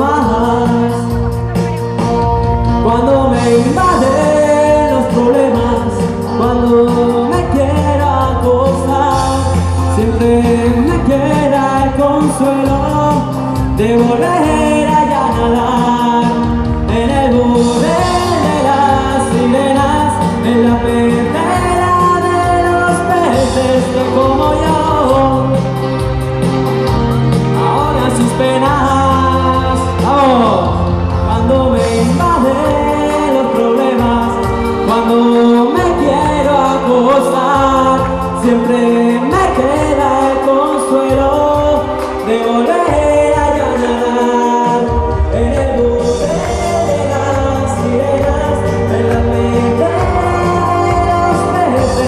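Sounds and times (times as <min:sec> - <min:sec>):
instrumental backing music: 0:00.0 - 0:52.0
man singing pop song: 0:00.0 - 0:52.0.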